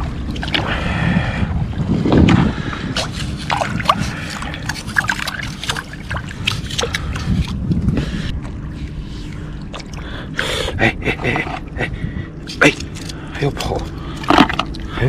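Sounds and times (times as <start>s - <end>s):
water splashing and dripping: 2.1s - 8.3s
scissors stirring water: 12.5s - 14.8s.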